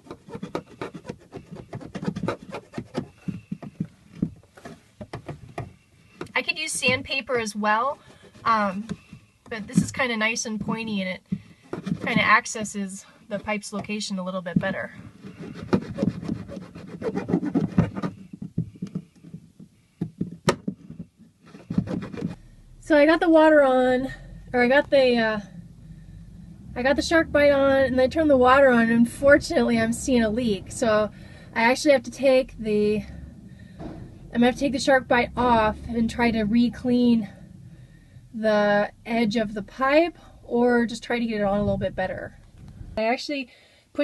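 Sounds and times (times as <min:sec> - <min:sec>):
metal file scraping pipe: 0:00.0 - 0:03.6
sharp knocks: 0:33.0 - 0:36.0.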